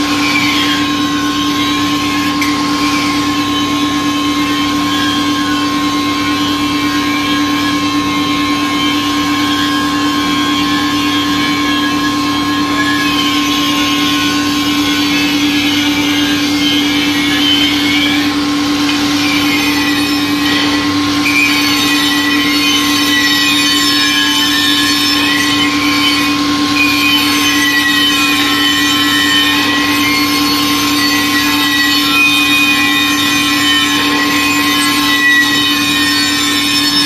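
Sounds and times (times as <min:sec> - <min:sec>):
tool scraping metal rim: 0:09.3 - 0:37.0.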